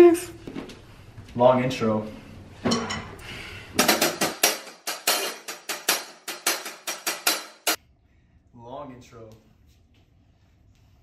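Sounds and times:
drum kit beat: 3.8s - 7.8s.

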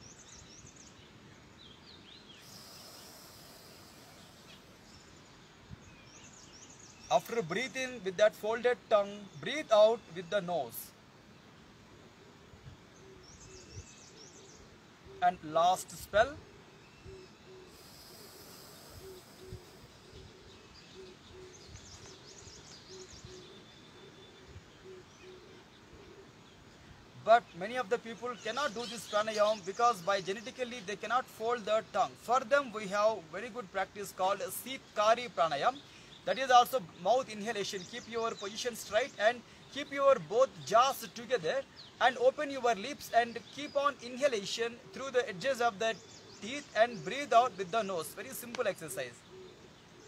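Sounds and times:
faint bird chirps: 0.0s - 11.5s, 12.1s - 50.0s
bird hooting: 2.4s - 4.9s, 17.0s - 21.6s
breath hissing through rolled tongue: 2.4s - 5.0s, 17.6s - 20.2s.

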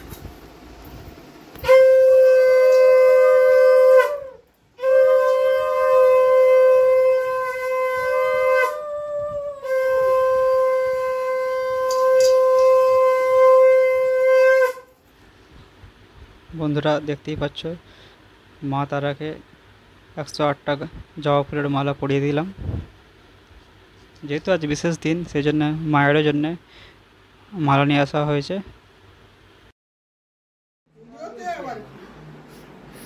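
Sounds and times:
conch shell blasts: 1.5s - 8.9s, 9.6s - 14.9s.

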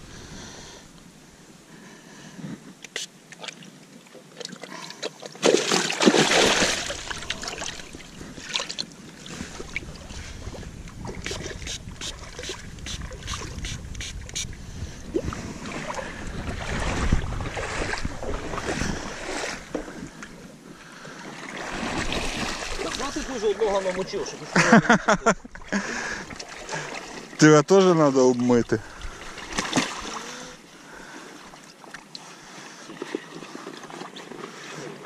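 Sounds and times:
water splashing and sloshing: 1.7s - 35.0s
wind buffeting microphone: 9.2s - 20.2s.

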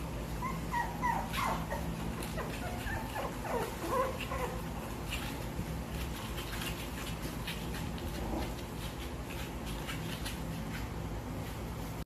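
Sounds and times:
low background hum: 0.0s - 12.0s
puppy claws scratching on mat: 0.7s - 12.0s.

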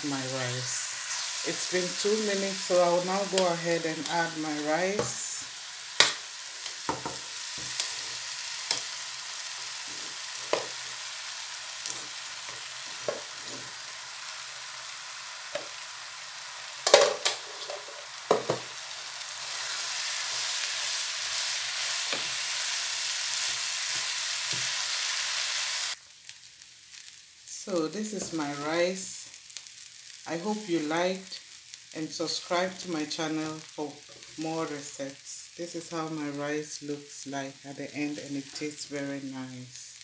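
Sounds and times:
vegetables sizzling in a frying pan: 0.0s - 40.0s.

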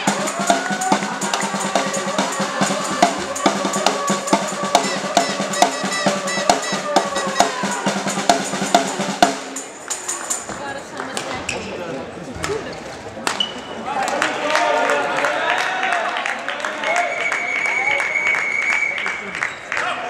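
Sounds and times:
drumming steady beat: 0.0s - 10.9s
long held tone: 1.4s - 7.9s.

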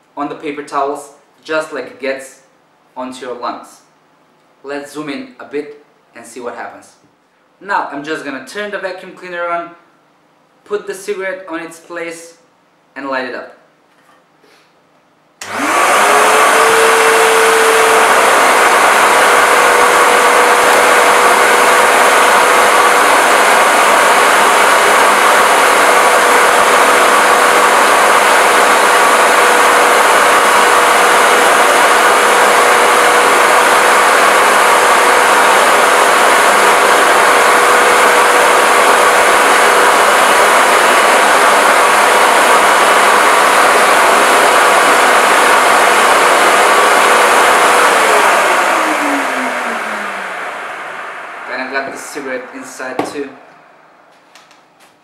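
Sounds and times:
vacuum cleaner motor whine: 15.4s - 53.5s
vacuum cleaner air rush: 15.4s - 53.7s.

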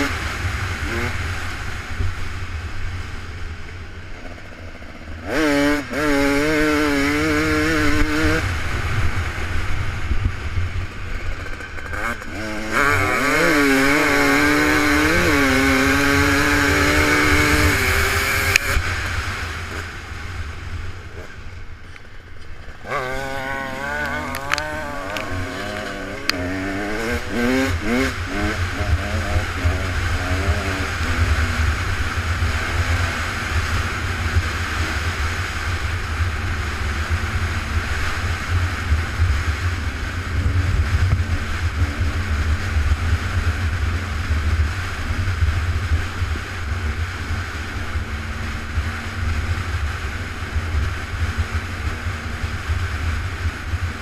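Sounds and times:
off-road vehicle engine revving: 4.3s - 9.1s, 11.2s - 19.9s, 22.8s - 54.0s.

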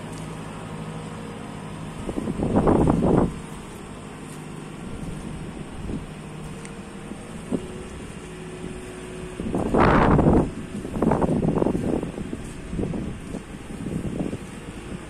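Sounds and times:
diesel engine running at low revs: 0.0s - 15.0s
wind buffeting microphone: 1.9s - 3.7s, 4.8s - 15.0s.

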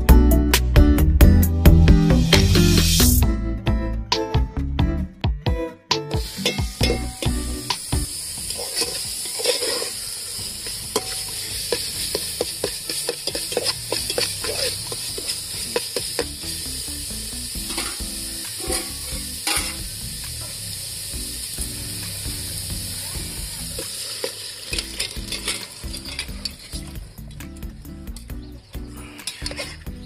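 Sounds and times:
spice paste sizzling in a pot: 6.2s - 27.8s
metal spatula scraping a pot: 8.4s - 16.6s, 17.5s - 19.8s, 23.8s - 27.3s, 29.0s - 30.0s.

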